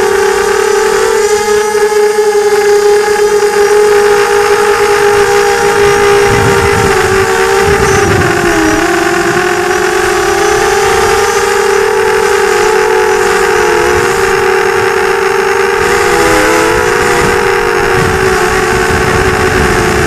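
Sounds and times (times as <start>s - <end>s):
drone propellers whining: 0.0s - 20.0s
wind buffeting: 0.0s - 20.0s.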